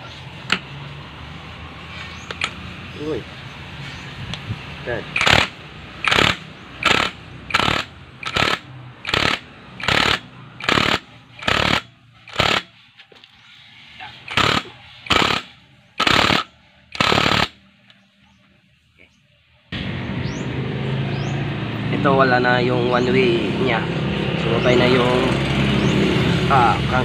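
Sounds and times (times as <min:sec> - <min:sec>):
impact driver bursts: 0:05.1 - 0:12.8, 0:14.2 - 0:17.6.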